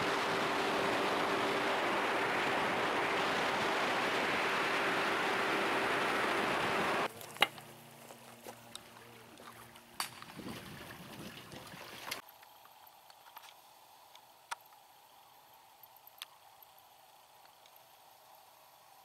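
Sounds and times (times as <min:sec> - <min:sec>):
wind and water rushing: 0:00.0 - 0:07.1, 0:10.1 - 0:12.2
boat engine hum: 0:00.0 - 0:12.1.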